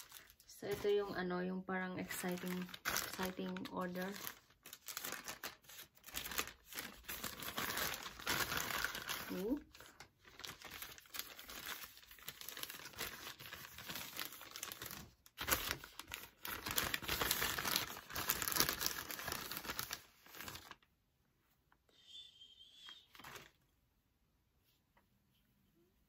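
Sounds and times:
plastic bag ripping: 0:00.0 - 0:01.1, 0:02.0 - 0:20.8
plastic bag crinkling: 0:00.0 - 0:20.9, 0:22.8 - 0:23.6.

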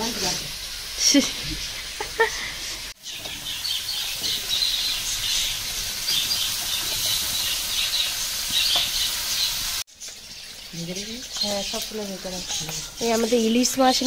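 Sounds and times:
greens sizzling in hot oil: 0:00.0 - 0:14.0
spatula stirring: 0:11.2 - 0:14.0.

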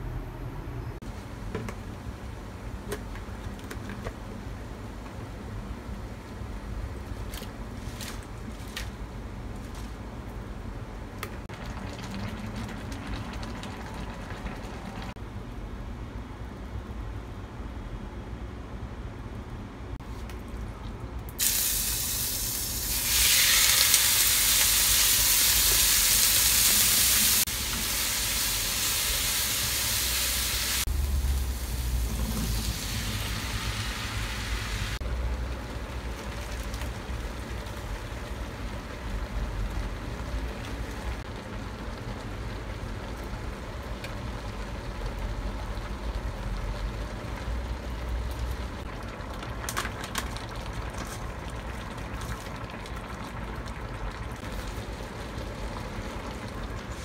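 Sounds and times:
meat sizzling in hot oil: 0:21.4 - 0:35.0.

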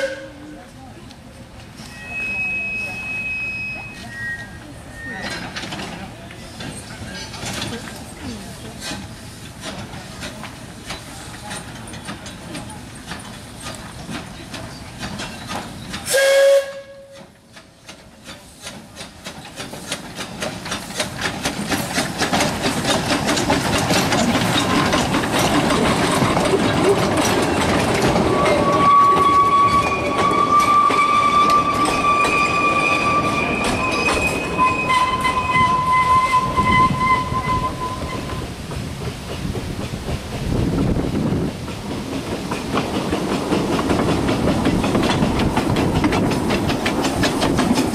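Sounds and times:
steam locomotive whistle: 0:00.0 - 0:00.6, 0:01.8 - 0:05.4, 0:16.0 - 0:17.3, 0:28.2 - 0:38.4
steam locomotive exhaust beats: 0:00.0 - 0:47.9
carriages clattering over rail joints: 0:01.2 - 0:47.9
wheels squealing on track: 0:01.8 - 0:05.9, 0:24.1 - 0:38.5.

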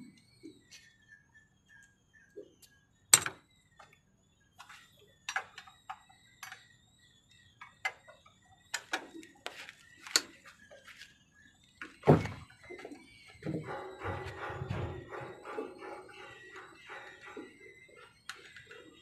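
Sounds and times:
hand tool knocking on metal: 0:13.4 - 0:17.7.

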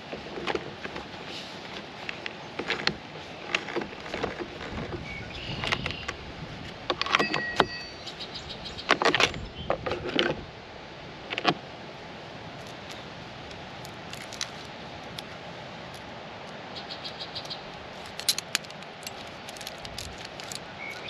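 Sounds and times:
saw chain clinking and rattling: 0:18.0 - 0:20.7.

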